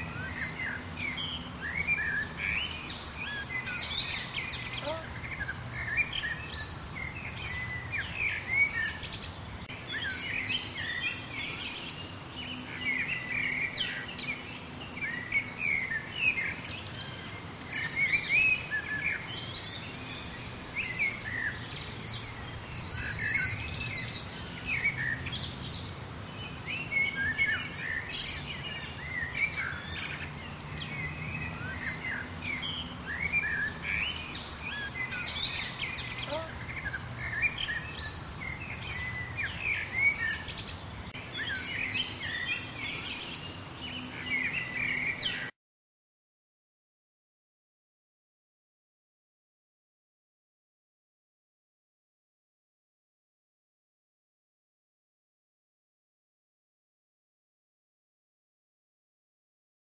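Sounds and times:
small birds chirping: 0.0 - 45.6.

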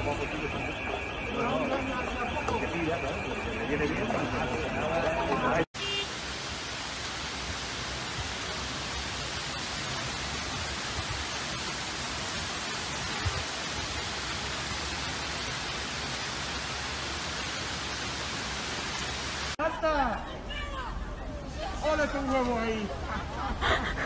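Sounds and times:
heavy rain hissing: 5.7 - 19.6.

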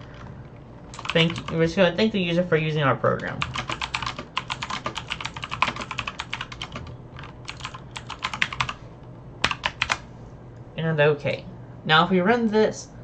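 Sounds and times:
typing on a computer keyboard: 0.9 - 1.6, 3.4 - 8.8, 9.4 - 10.0.

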